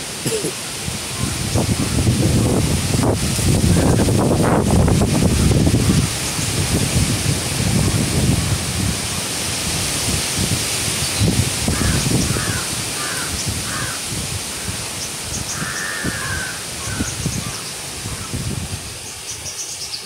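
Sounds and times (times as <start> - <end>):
rustling leaves: 0.0 - 20.0
wind through trees: 0.0 - 20.0
wind buffeting microphone: 0.7 - 19.5
bird calling: 11.1 - 14.0, 14.6 - 18.4.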